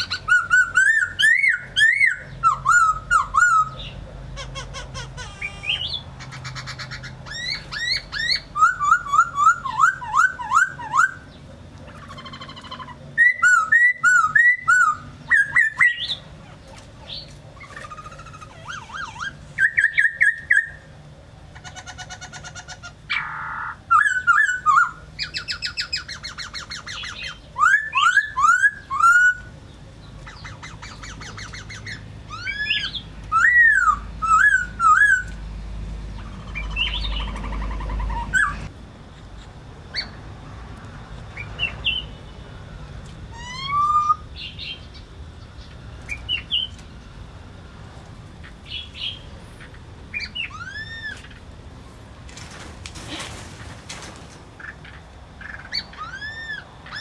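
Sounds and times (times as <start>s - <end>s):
birds singing whistles and trills: 0.0s - 20.9s, 21.5s - 35.4s, 36.1s - 38.7s, 39.3s - 40.2s, 41.3s - 42.5s, 43.3s - 46.9s, 48.4s - 51.5s, 54.6s - 57.0s.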